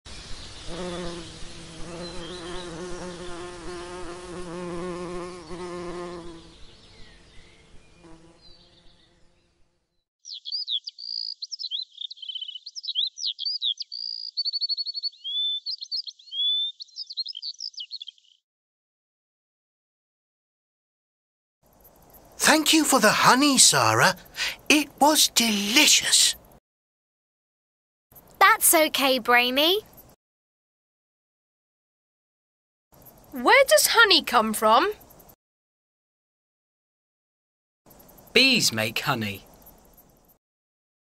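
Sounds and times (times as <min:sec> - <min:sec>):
songbird chirping and trilling: 0:00.1 - 0:03.2, 0:05.1 - 0:18.4, 0:28.2 - 0:30.2, 0:33.0 - 0:35.4, 0:37.9 - 0:40.4
insect buzzing: 0:00.2 - 0:18.3, 0:21.7 - 0:26.6, 0:28.2 - 0:30.2, 0:33.0 - 0:35.4, 0:37.9 - 0:40.4.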